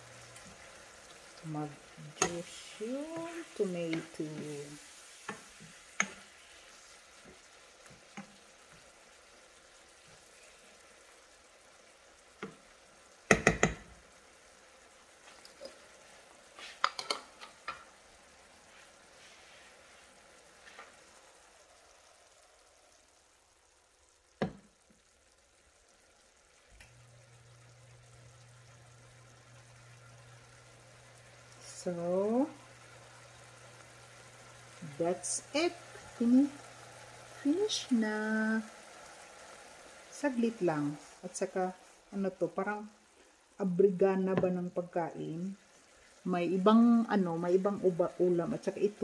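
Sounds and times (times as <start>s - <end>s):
food sizzling in a frying pan: 0.0s - 49.0s
spatula and utensils clicking: 6.0s - 6.3s, 16.8s - 17.8s.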